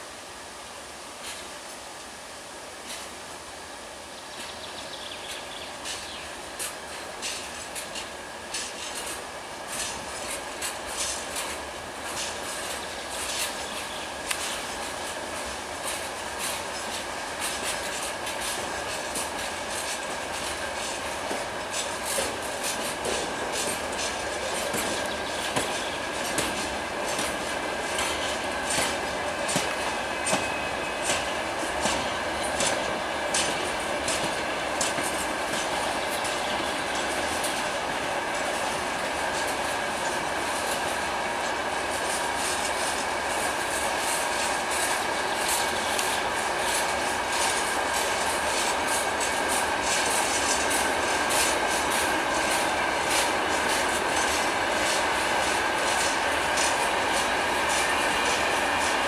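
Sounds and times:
train rumble: 0.0 - 59.0
train wheels clicking over rail joints: 2.8 - 3.2, 4.3 - 59.0
thin steady squeal: 27.8 - 33.2.

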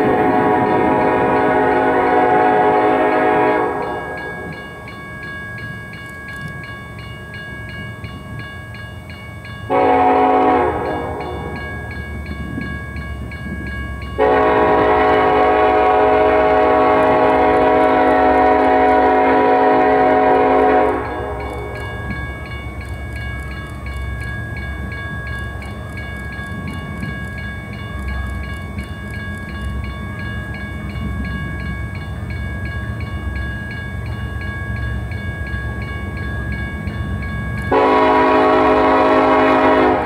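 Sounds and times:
locomotive air horn blasts: 0.0 - 4.2, 9.7 - 11.6, 14.2 - 21.8, 37.7 - 40.0
crossing signal bell ringing: 0.0 - 40.0
low rumble of train: 0.0 - 40.0.

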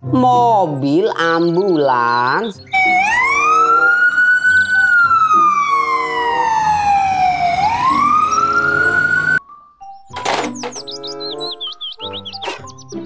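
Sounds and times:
ambulance siren wailing: 2.7 - 9.4.

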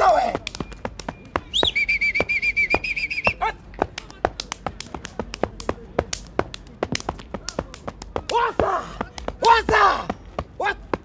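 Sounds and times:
sneakers stamping on hard ground: 0.0 - 11.0
wavering whistled note: 0.6 - 3.4.

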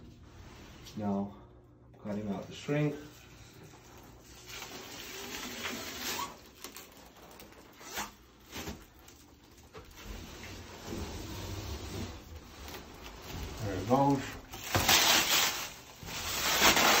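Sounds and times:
plastic wrap crinkling: 2.2 - 10.7, 12.1 - 17.0
plastic wrap tearing: 3.8 - 10.5, 12.6 - 17.0.

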